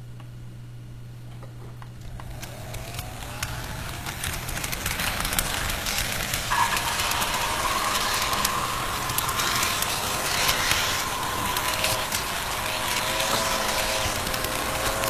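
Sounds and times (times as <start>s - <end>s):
steady high whine: 1.9s - 15.0s
model train rumbling on track: 2.0s - 15.0s.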